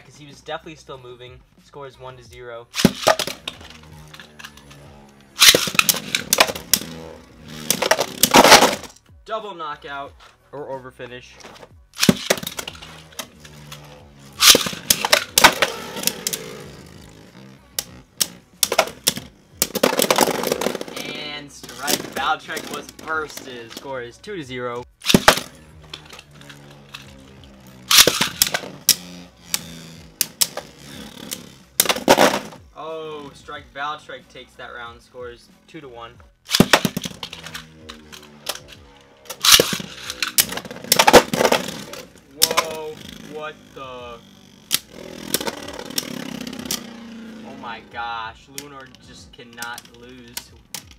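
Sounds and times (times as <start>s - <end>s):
spinning tops clacking: 2.8s - 8.9s, 12.0s - 23.9s, 25.0s - 32.6s, 36.5s - 43.4s.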